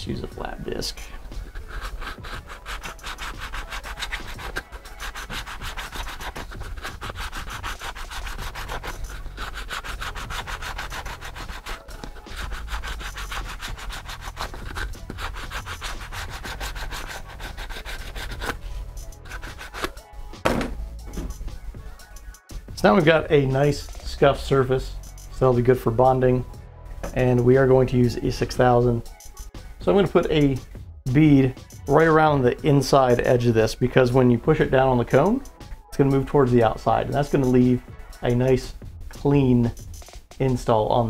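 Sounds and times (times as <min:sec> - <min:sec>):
sanding disc rasping on plastic: 0:01.3 - 0:20.0.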